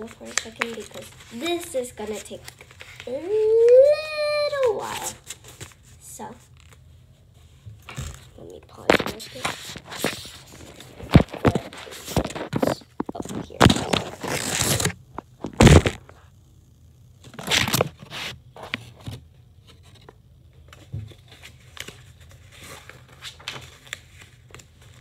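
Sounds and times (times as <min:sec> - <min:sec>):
paper rustling and crinkling: 0:00.0 - 0:16.1, 0:17.3 - 0:25.0
paper scraping on device: 0:09.0 - 0:16.1.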